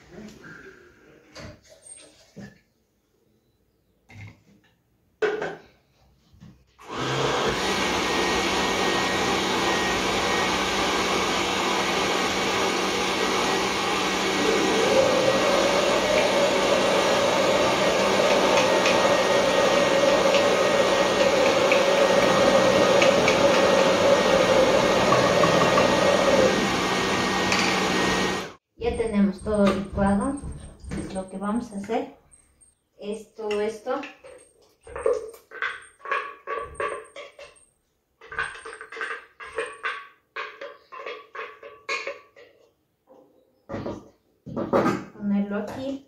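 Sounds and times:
blender running: 6.8 - 28.6.

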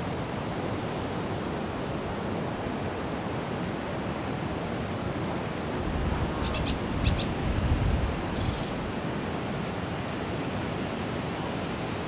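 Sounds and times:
rushing outdoor noise: 0.0 - 12.0.

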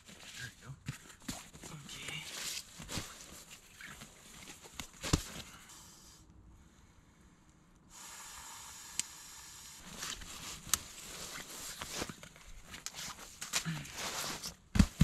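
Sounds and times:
steady hiss: 5.0 - 6.3, 7.9 - 12.2.

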